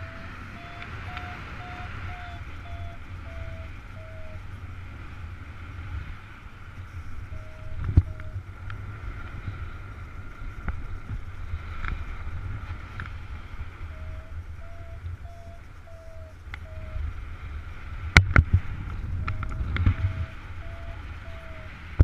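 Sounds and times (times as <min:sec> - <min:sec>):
short electronic beeps: 0:00.0 - 0:04.4, 0:07.3 - 0:08.4, 0:13.9 - 0:17.0, 0:19.3 - 0:21.7
wind rushing over microphone: 0:00.0 - 0:22.0
faint clicks: 0:15.4 - 0:16.8, 0:18.1 - 0:21.5.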